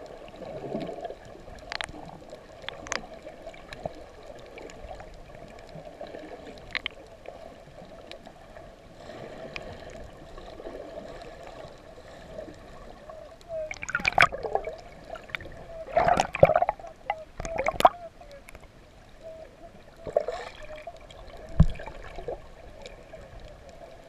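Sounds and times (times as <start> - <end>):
muffled underwater hum: 9.4 - 24.0
loud gurgling bursts: 13.7 - 14.6.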